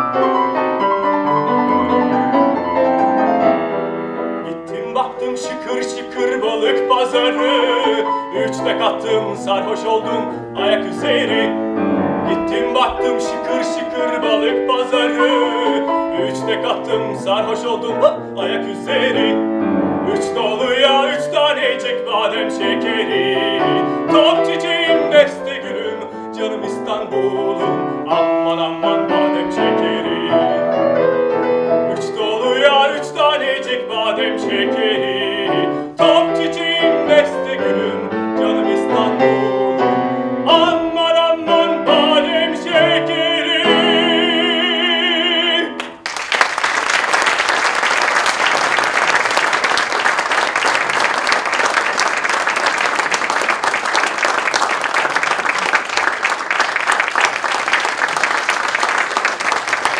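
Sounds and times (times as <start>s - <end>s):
grand piano accompaniment: 0.0s - 59.9s
operatic tenor singing: 4.4s - 31.1s, 31.7s - 46.0s
audience applause: 45.8s - 59.9s.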